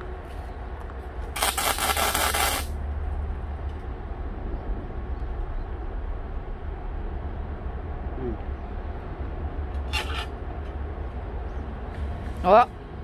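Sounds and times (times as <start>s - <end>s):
steady low hum: 0.0s - 13.0s
arc welding crackling: 1.3s - 2.8s.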